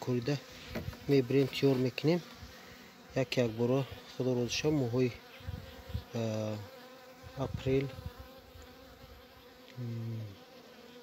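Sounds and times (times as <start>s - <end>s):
bees buzzing: 0.0s - 11.0s.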